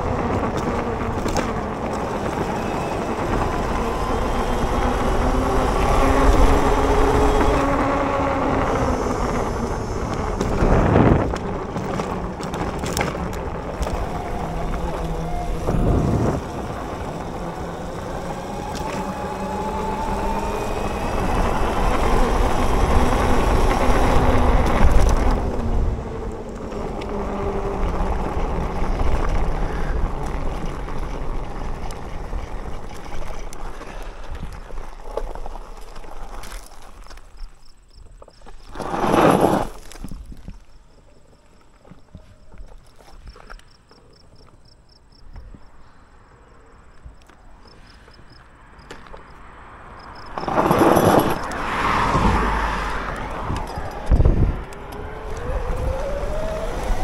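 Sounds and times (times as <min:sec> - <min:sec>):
steady rushing noise: 0:00.0 - 0:36.0
e-bike motor whining: 0:00.0 - 0:37.7, 0:50.0 - 0:57.0.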